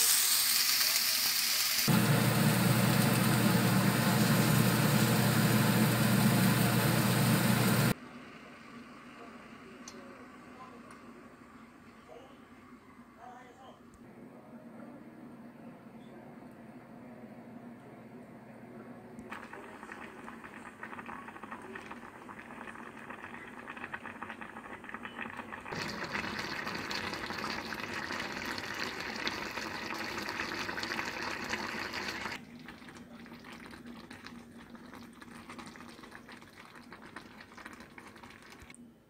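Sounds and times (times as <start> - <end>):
saucepan simmering and bubbling: 1.9 - 9.5, 19.3 - 38.8.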